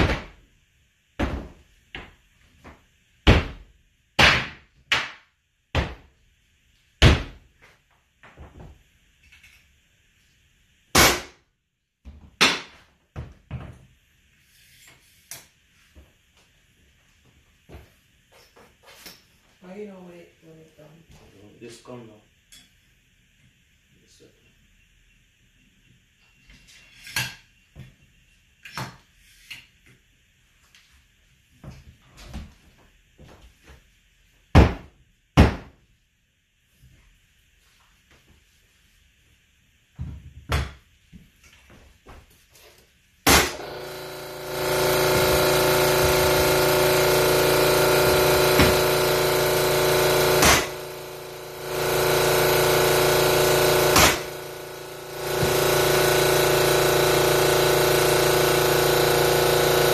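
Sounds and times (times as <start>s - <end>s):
flooring nailer shots: 3.2s - 6.1s, 10.9s - 11.4s, 12.4s - 12.8s, 43.2s - 59.9s.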